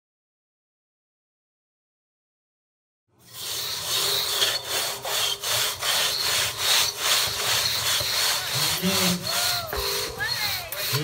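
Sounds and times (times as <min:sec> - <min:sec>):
crosscut saw cutting through log: 0:03.2 - 0:11.0.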